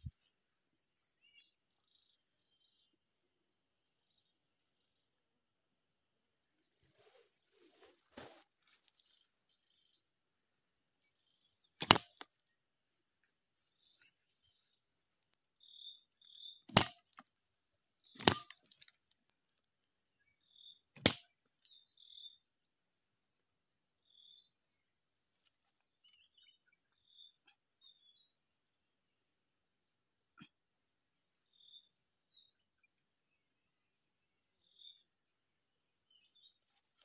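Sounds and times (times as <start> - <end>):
insects droning: 0.0 - 37.0
bamboo pieces clacking: 11.8 - 12.2, 16.7 - 17.3, 18.2 - 19.2, 21.0 - 21.2.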